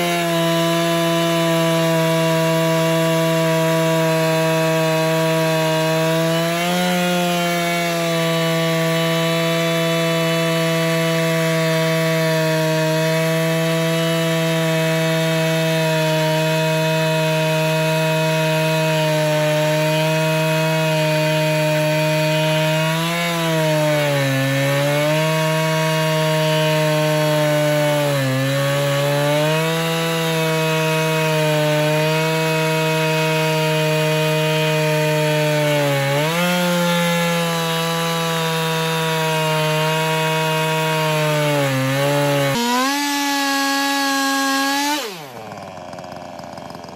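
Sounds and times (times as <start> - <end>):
chainsaw chain ripping through log: 0.0 - 46.9
chainsaw running at full throttle: 0.0 - 46.9.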